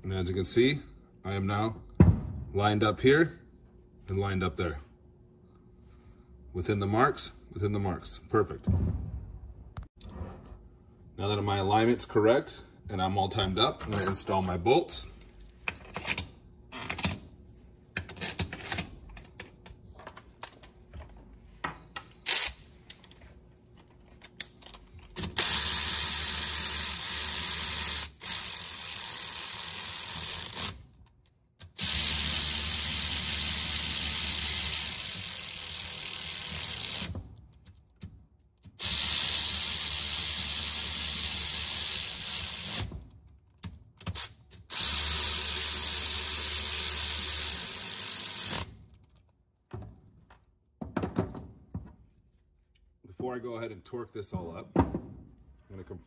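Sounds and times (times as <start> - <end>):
cordless electric ratchet running: 25.2 - 30.8, 31.6 - 37.1, 38.8 - 42.9, 44.1 - 48.7.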